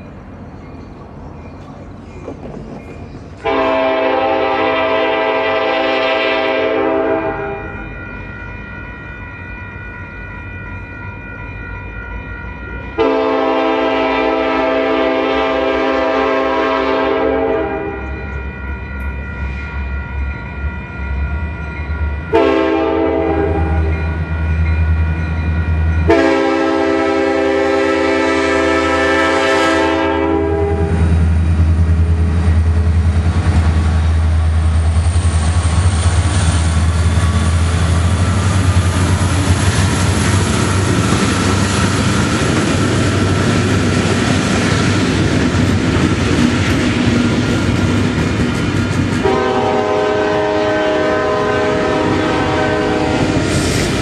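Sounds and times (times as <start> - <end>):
train wheel noise: 0.0 - 54.0
train air horn: 3.4 - 7.9, 12.9 - 18.3, 22.3 - 24.0, 26.0 - 31.2, 49.2 - 53.6.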